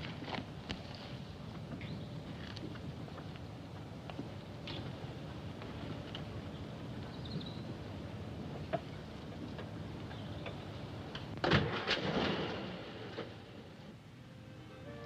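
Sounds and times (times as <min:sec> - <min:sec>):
steady low rumble: 0:00.0 - 0:11.4.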